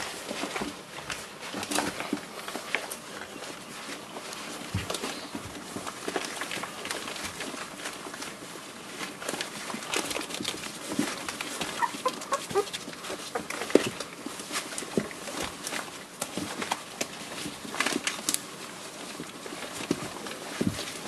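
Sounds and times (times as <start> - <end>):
puppies squeaking: 11.6 - 13.9.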